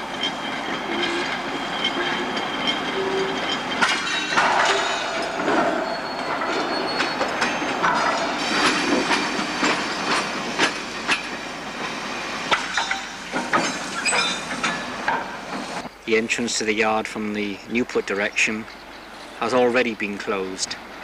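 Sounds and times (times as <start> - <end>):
wagon wheels clattering and squealing: 0.0 - 11.4, 12.5 - 15.8.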